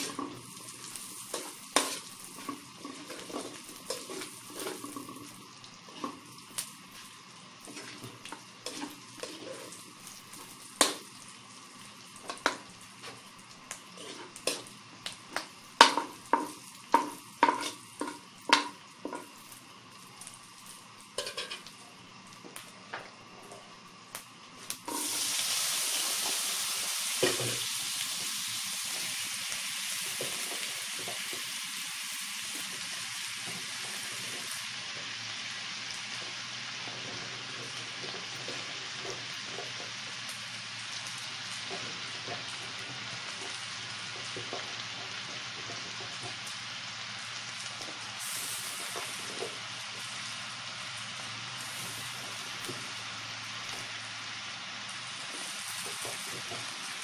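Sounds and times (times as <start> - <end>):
food frying in a wok: 0.0 - 57.0
loud sizzle in hot oil: 0.0 - 57.0
metal ladle clanking on wok: 21.2 - 21.6.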